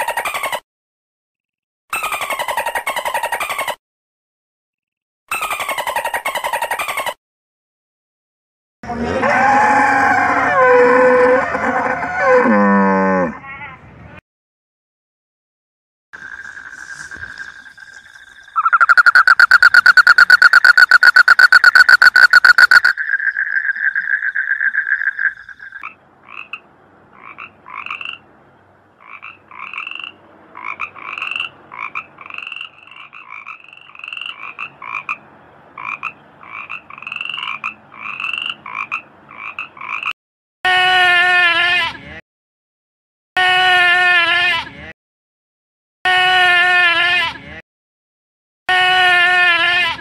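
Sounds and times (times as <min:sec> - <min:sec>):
treefrog calling: 0:16.2 - 0:26.6, 0:29.0 - 0:35.2, 0:35.8 - 0:40.1.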